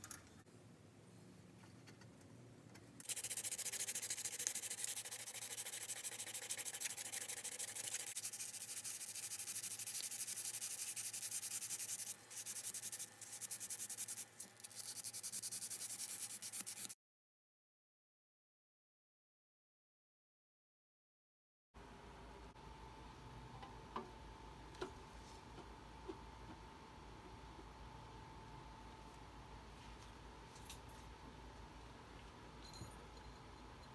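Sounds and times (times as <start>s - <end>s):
sandpaper rubbing on metal rod: 3.0s - 17.0s.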